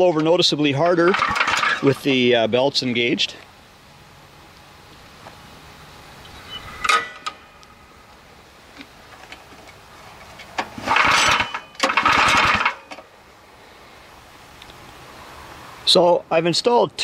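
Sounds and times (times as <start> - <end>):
engine recoil starter cranking: 1.0 - 2.0, 10.3 - 13.1.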